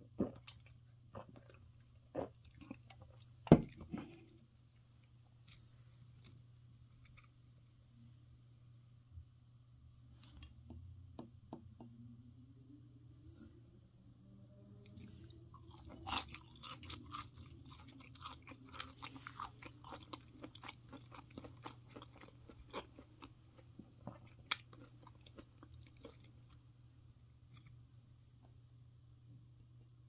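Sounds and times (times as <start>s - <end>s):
person chewing crunchy fried food: 0.1s - 5.1s, 15.0s - 26.7s.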